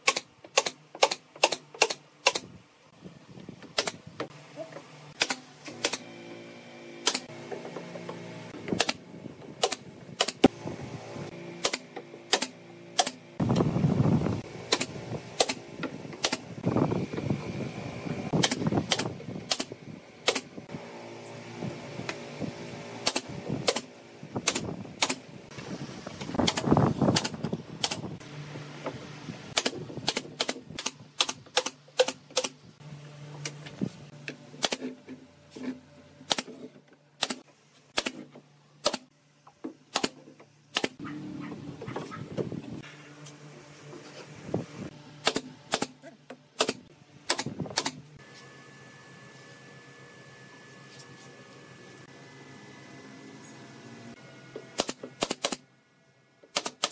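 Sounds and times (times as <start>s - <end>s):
nail gun firing: 0.0s - 2.6s, 3.8s - 4.0s, 5.2s - 6.0s, 7.0s - 7.3s, 8.7s - 9.0s, 9.6s - 10.5s, 11.6s - 13.2s, 14.7s - 15.6s, 16.2s - 16.5s, 18.3s - 20.6s, 23.0s - 25.3s, 26.4s - 28.1s, 29.6s - 32.6s, 34.6s - 34.9s, 36.3s - 36.5s, 37.2s - 37.4s, 38.0s - 39.1s, 39.9s - 41.0s, 45.2s - 46.0s, 46.6s - 48.0s, 54.8s - 55.6s, 56.5s - 56.9s.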